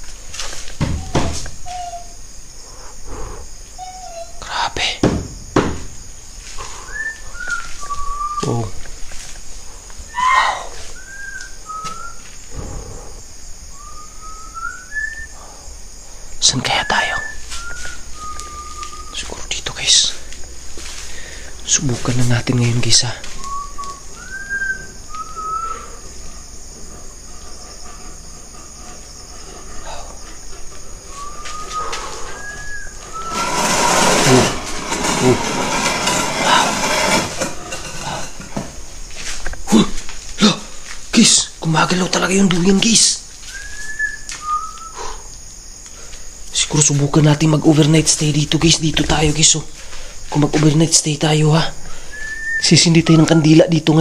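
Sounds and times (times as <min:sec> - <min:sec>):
night insects chirring: 0:00.0 - 0:54.0
short whistled notes: 0:31.1 - 0:33.6
hammock cord creaking: 0:33.0 - 0:38.8.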